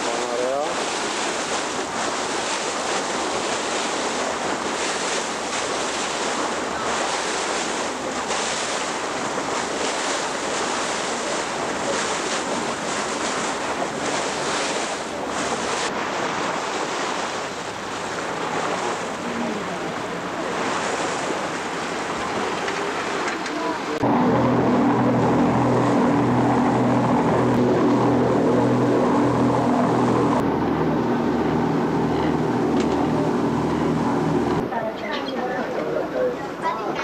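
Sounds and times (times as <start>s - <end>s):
sea water rushing: 0.0s - 37.0s
wind buffeting microphone: 20.2s - 35.0s.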